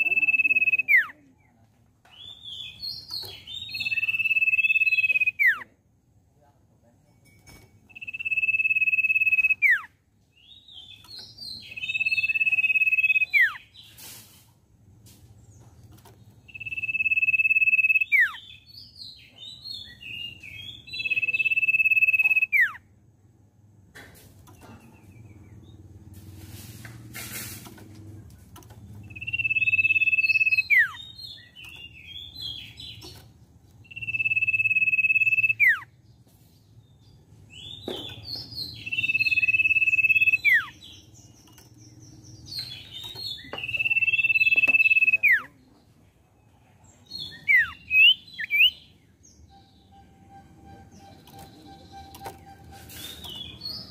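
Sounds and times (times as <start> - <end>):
bird whistling with downward drop: 3.8 - 5.6, 7.9 - 9.8, 16.5 - 18.4, 21.4 - 22.8, 29.1 - 31.0, 33.9 - 35.8, 38.8 - 40.8
scratchy bird chattering: 42.6 - 45.4.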